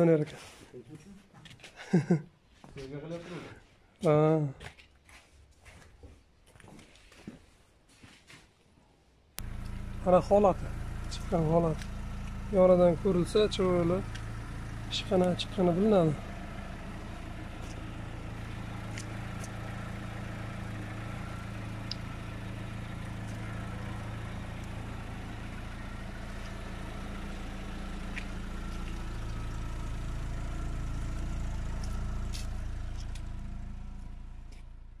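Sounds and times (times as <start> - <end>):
car engine idling: 9.4 - 35.0.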